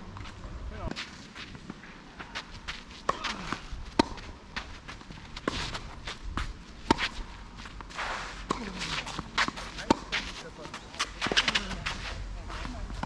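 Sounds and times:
footsteps on court: 0.1 - 13.0
racket hitting tennis ball: 2.3 - 11.8.

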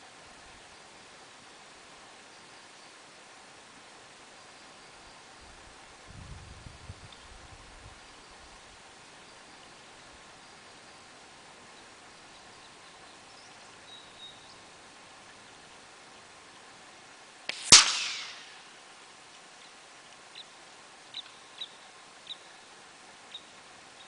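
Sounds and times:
high chirps: 17.5 - 18.7
air rifle shot: 17.5 - 18.8.

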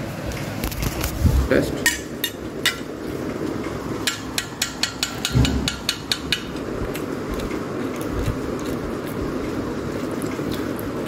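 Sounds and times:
kitchen utensil tapping: 4.0 - 6.6.

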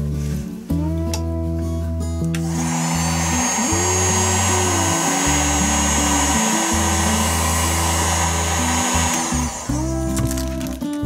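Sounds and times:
background music: 0.0 - 11.0
heat gun blowing with whine: 2.4 - 10.6.

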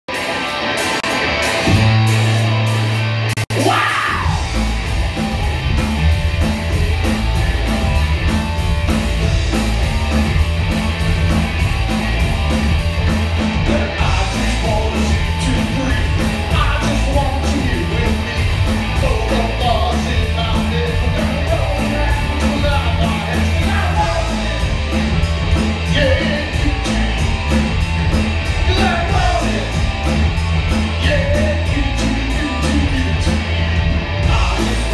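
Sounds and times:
bass guitar: 0.0 - 34.9
drums beating: 0.1 - 34.9
electric guitar: 0.1 - 34.9
man singing: 3.5 - 4.5, 13.6 - 25.0, 25.8 - 27.1, 28.6 - 29.9, 30.9 - 33.6, 34.2 - 34.9.

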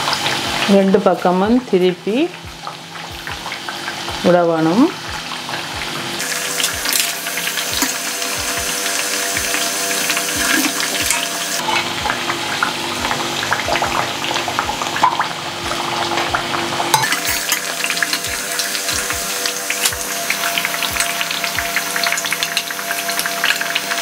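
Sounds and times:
fritters deep-frying in oil: 0.0 - 24.0
crackling and popping oil: 5.0 - 24.0.

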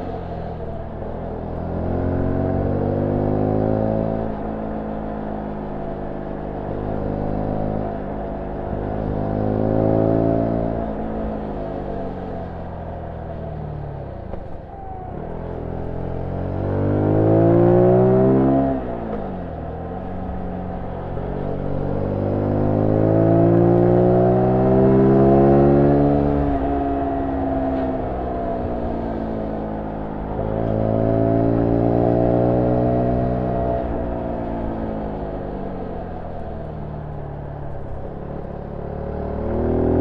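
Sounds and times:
motorcycle engine revving: 14.3 - 40.0.

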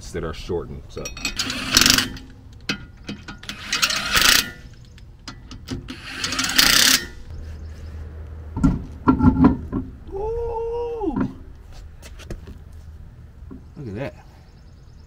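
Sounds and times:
cordless impact wrench bursts: 1.4 - 2.3, 3.4 - 4.7, 5.6 - 7.2.

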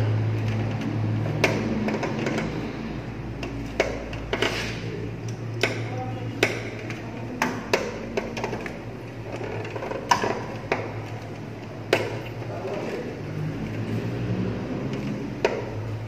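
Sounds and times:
steady low hum: 0.0 - 16.0
clicks and taps of parts handled: 3.4 - 12.8.

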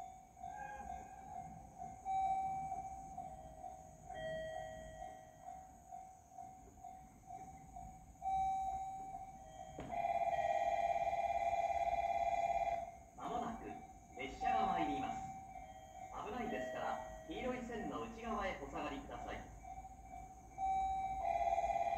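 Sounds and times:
railway warning bells ringing: 0.0 - 21.9
fast-pulsing warning tone: 6.5 - 21.9.

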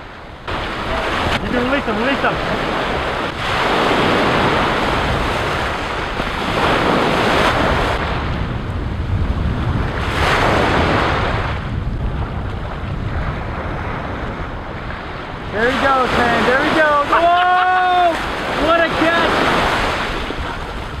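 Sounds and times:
ocean surf breaking: 0.0 - 21.0
wind rumbling on microphone: 0.0 - 21.0.

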